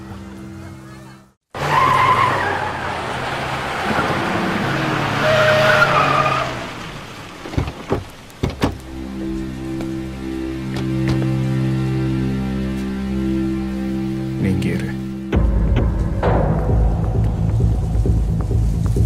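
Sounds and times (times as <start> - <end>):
car engine: 1.5 - 9.2
tyres squealing: 1.6 - 8.7
car door clicks and knocks: 7.5 - 8.8.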